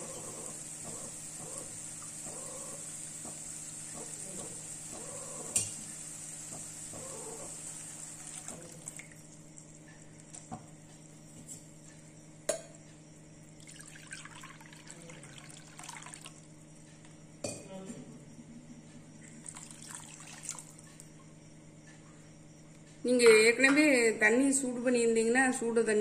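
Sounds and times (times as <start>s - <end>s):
apple pieces sizzling in pan: 0.0s - 8.6s
water pouring: 7.8s - 9.7s, 13.6s - 16.4s, 19.4s - 20.8s.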